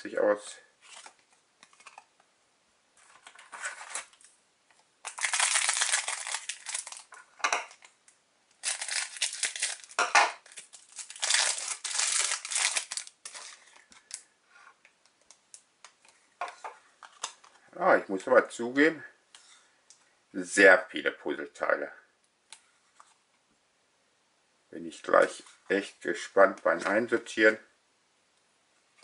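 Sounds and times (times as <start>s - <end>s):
cards rustling and ticking: 5.0s - 7.1s, 8.6s - 14.3s
wrapper tearing and crinkling: 5.0s - 7.2s, 8.6s - 14.2s.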